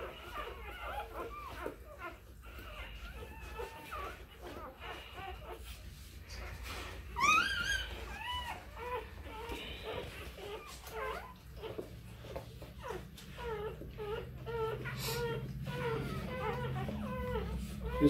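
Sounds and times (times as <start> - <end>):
puppies squeaking and mewing: 0.0 - 18.0.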